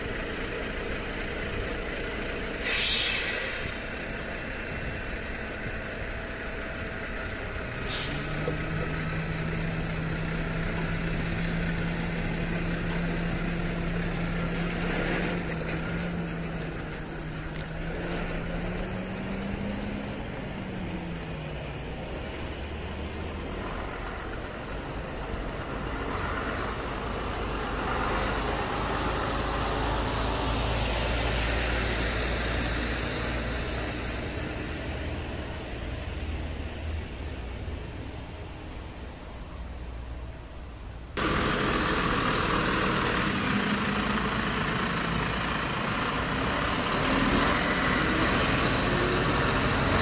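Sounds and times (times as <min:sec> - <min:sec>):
diesel engine humming: 0:00.0 - 0:50.0
truck passing with engine rumble: 0:00.0 - 0:50.0
air brake hiss: 0:02.6 - 0:03.9, 0:07.8 - 0:08.5.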